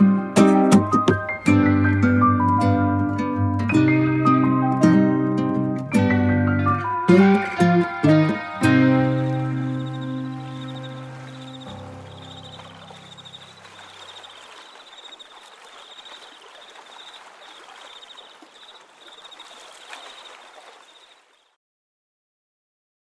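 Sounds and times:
soft instrumental music: 0.0s - 13.6s
high trilling call: 8.9s - 21.1s.

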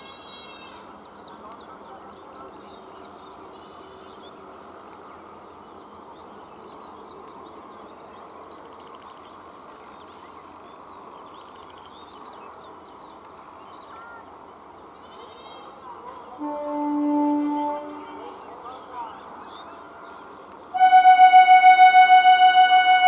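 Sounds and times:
insects buzzing: 8.8s - 23.0s.

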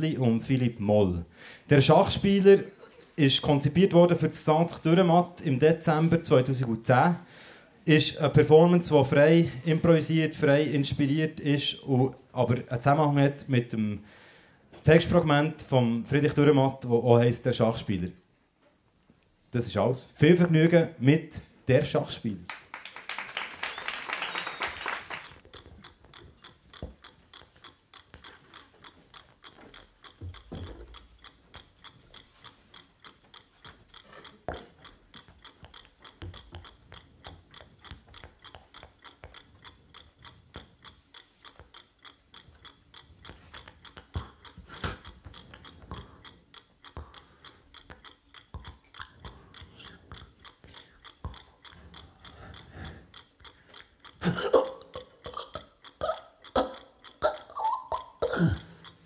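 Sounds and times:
chess clock ticking: 0.0s - 18.3s, 19.5s - 59.0s
applause: 22.5s - 25.4s.

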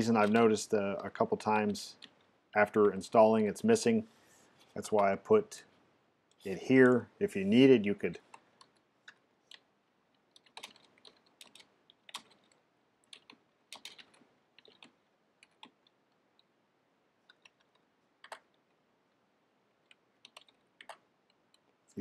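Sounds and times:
faint keyboard typing: 0.0s - 3.4s, 7.8s - 22.0s.

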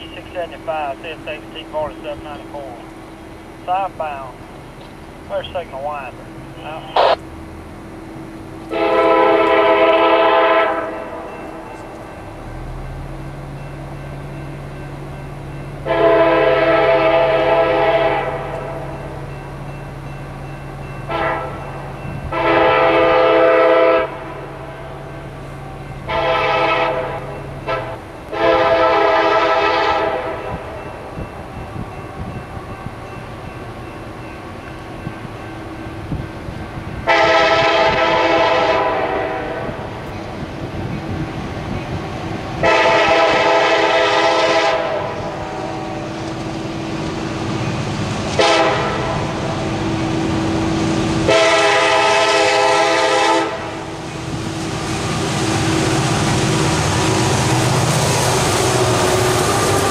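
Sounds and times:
locomotive air horn blasts: 8.7s - 11.3s, 15.8s - 18.9s, 21.1s - 21.7s, 22.3s - 24.9s, 26.1s - 30.8s, 37.0s - 39.9s, 42.6s - 46.2s, 48.4s - 49.8s, 51.2s - 54.8s.

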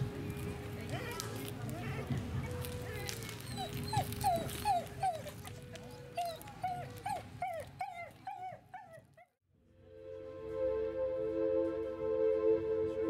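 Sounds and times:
fire crackling: 0.0s - 8.2s
dog yapping: 3.4s - 5.5s, 6.2s - 9.3s.

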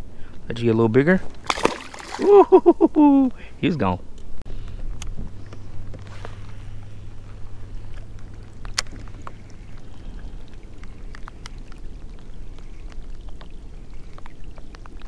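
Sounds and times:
low steady rumble: 0.0s - 15.0s
waves lapping against hull: 1.0s - 2.4s, 4.5s - 15.0s.

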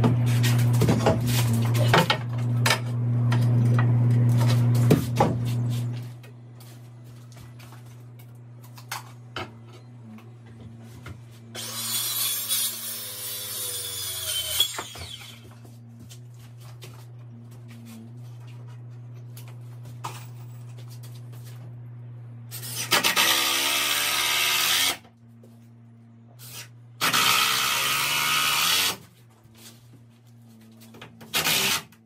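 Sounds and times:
steady low hum: 0.0s - 11.9s, 14.4s - 23.9s, 24.9s - 27.6s
circular saw cutting timber: 11.5s - 15.5s.

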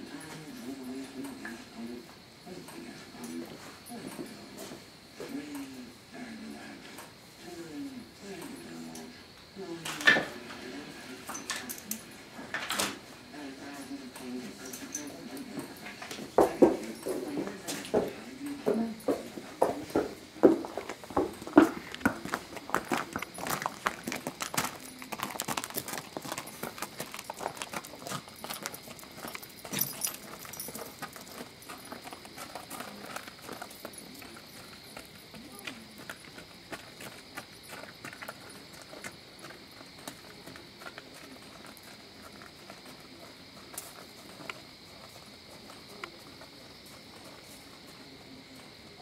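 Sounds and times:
person's footsteps: 14.2s - 49.0s
hooves crunching on gravel: 15.7s - 49.0s.

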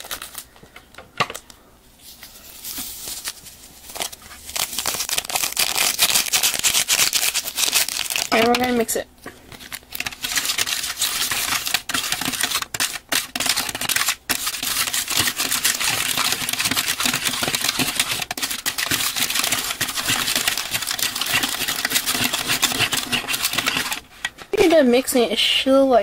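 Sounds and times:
plastic stirrer scraping tray: 10.0s - 25.0s.

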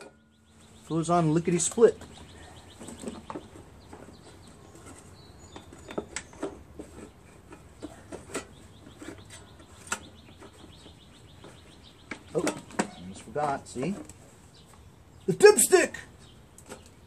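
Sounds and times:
faint birds chirping: 0.0s - 17.0s
plastic engine housing knocks and clicks: 1.6s - 14.1s.

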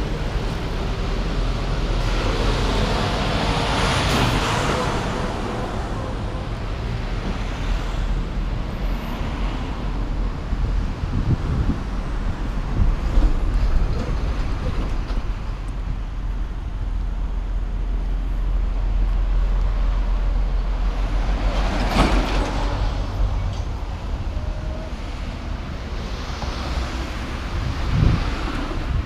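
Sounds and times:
cars and truck driving past: 0.0s - 11.8s
low traffic rumble: 0.0s - 29.0s.

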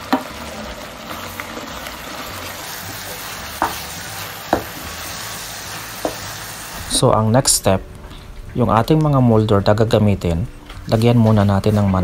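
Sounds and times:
filling sizzling in a frying pan: 0.0s - 8.4s
spoon knocking against pan: 6.0s - 6.2s.

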